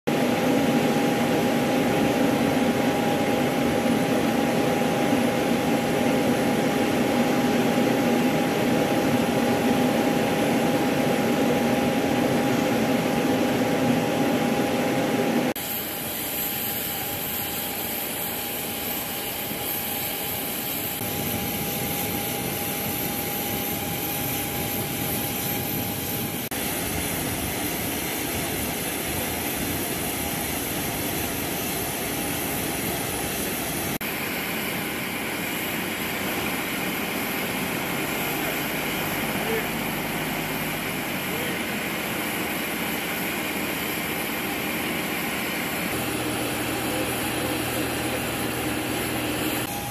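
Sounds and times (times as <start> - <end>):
turbine engines whining: 0.1 - 49.9.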